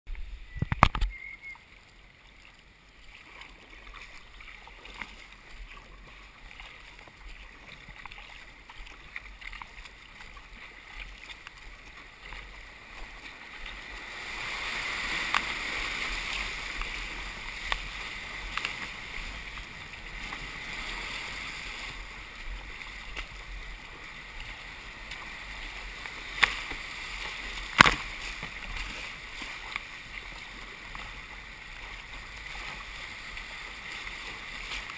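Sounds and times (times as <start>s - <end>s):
paddle strokes: 0.1s - 34.9s
water lapping: 0.8s - 34.9s
whitewater rushing: 11.4s - 34.9s.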